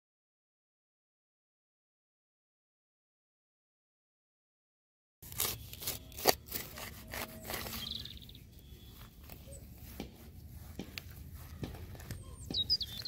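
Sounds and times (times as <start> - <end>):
hands handling turf: 5.2 - 13.0
knife cutting through turf: 5.2 - 13.0
turf rustling: 5.2 - 13.0
bird chirping: 5.4 - 13.0.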